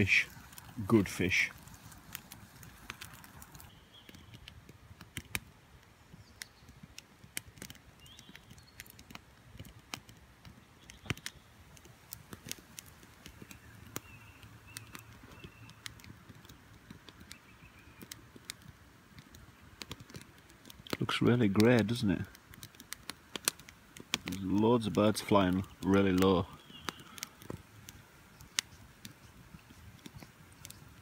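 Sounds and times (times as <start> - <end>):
campfire crackling and popping: 0.0 - 31.0
birds twittering: 2.6 - 4.5, 8.0 - 9.0, 10.6 - 11.6, 13.2 - 16.6, 17.2 - 18.2, 24.3 - 27.5, 28.2 - 31.0.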